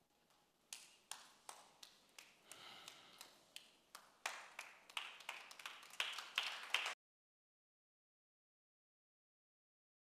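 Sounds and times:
hand claps ringing in a hall: 0:00.3 - 0:07.0.

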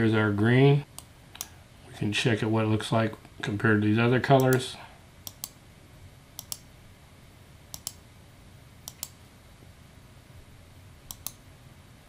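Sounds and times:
computer mouse clicking: 0:05.2 - 0:05.6, 0:06.4 - 0:06.7, 0:07.7 - 0:08.0, 0:08.8 - 0:09.2, 0:11.1 - 0:11.4.

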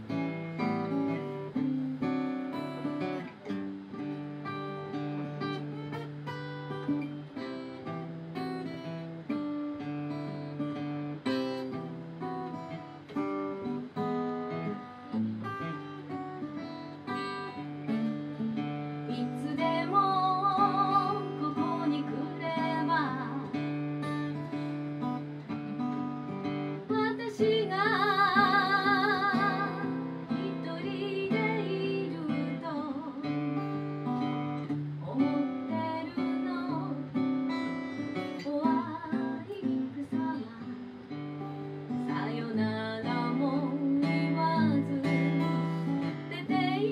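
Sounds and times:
acoustic guitar playing: 0:00.0 - 0:46.9
woman singing with vibrato: 0:19.1 - 0:24.1, 0:26.8 - 0:33.8, 0:34.9 - 0:37.6, 0:38.2 - 0:41.0, 0:41.9 - 0:46.9.

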